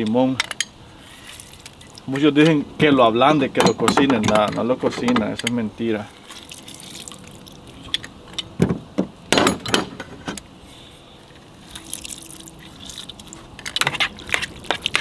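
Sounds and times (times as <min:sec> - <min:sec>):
splashing liquid with drips: 0:01.2 - 0:02.1, 0:06.1 - 0:08.0, 0:11.3 - 0:15.0.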